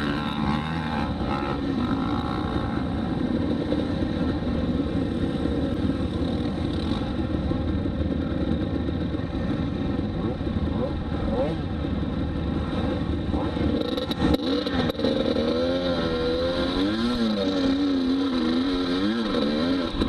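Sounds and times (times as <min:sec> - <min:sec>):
dirt bike engine low revs: 0:12.5 - 0:20.0.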